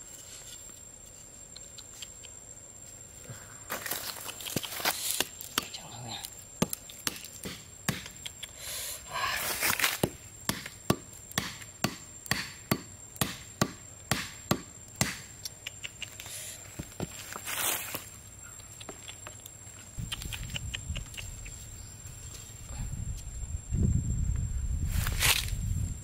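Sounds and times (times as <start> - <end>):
hammer knocking wooden stake: 6.6 - 8.2, 10.0 - 15.3.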